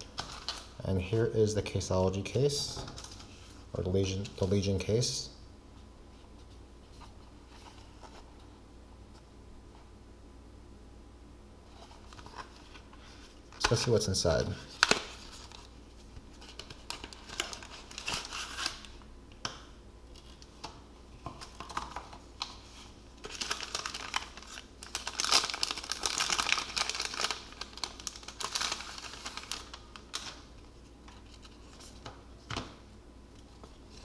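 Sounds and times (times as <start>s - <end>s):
plastic and cardboard crinkling: 0.0s - 0.8s, 11.7s - 14.0s, 14.6s - 19.0s, 20.2s - 32.8s.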